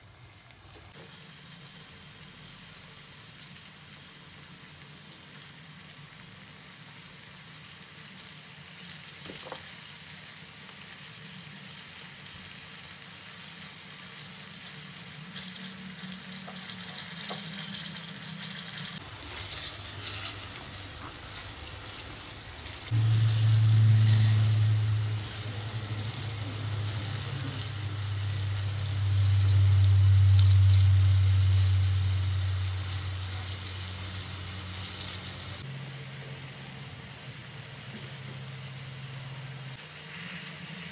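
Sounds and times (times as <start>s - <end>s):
chicken deep-frying in oil: 0.0s - 40.9s
low hum: 18.8s - 36.0s.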